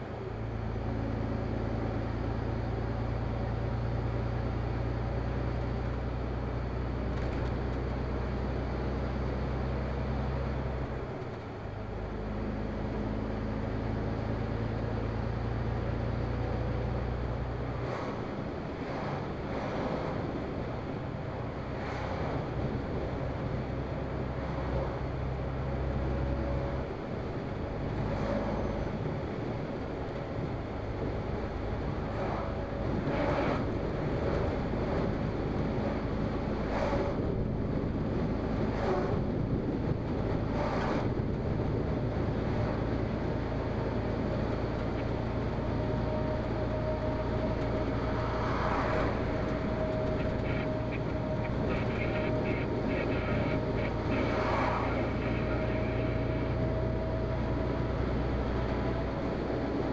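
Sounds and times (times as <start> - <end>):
truck engine and road drone: 0.0 - 59.9
vehicles whooshing past: 35.8 - 37.4, 38.2 - 39.6, 40.4 - 41.3, 44.8 - 59.9.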